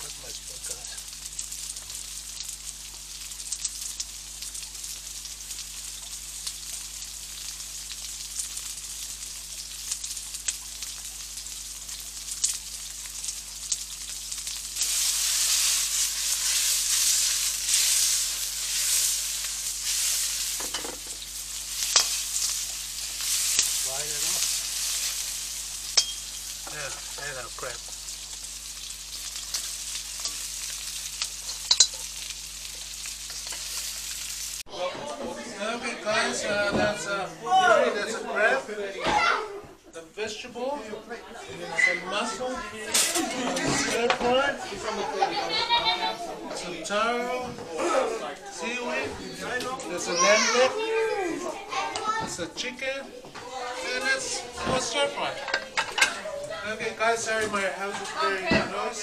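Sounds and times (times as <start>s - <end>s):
onion sizzling in oil: 0.0s - 34.8s, 40.9s - 59.0s
stirring in a pan: 4.0s - 34.7s, 51.4s - 59.0s.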